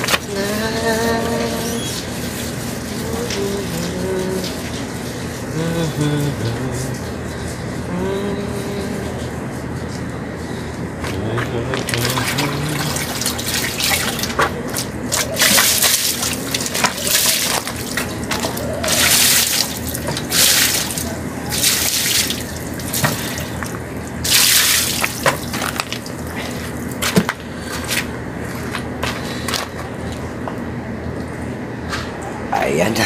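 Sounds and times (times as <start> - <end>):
steady low hum: 0.0 - 33.0
water splashing onto bicycle: 11.9 - 23.6, 24.2 - 26.1.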